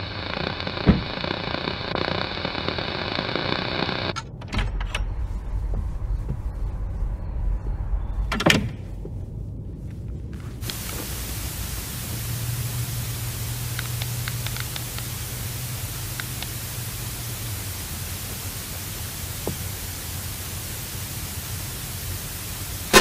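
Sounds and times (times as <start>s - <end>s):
television static hiss: 0.0s - 4.2s, 10.4s - 23.0s
steady hiss: 0.0s - 23.0s.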